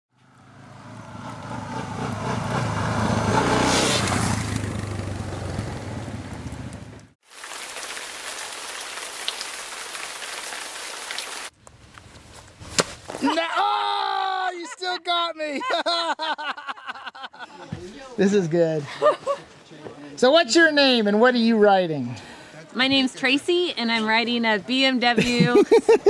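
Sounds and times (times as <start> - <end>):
rain falling on puddle: 7.2 - 11.5.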